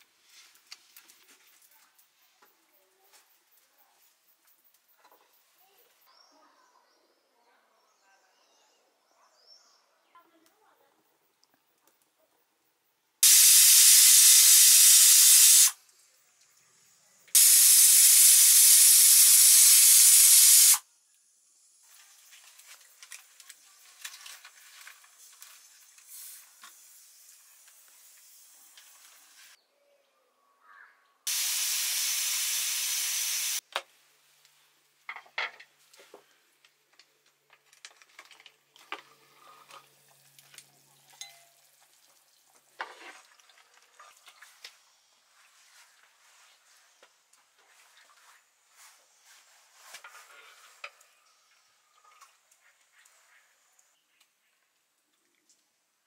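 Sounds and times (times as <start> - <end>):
pressure cooker whistle hissing steam: 13.2 - 15.8, 17.4 - 20.8, 31.3 - 33.6.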